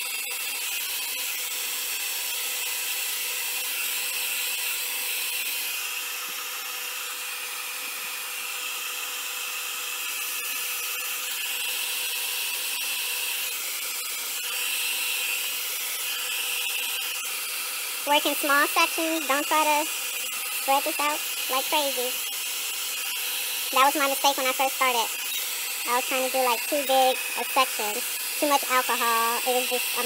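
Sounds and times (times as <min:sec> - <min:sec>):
blow dryer whining: 0:10.2 - 0:30.0.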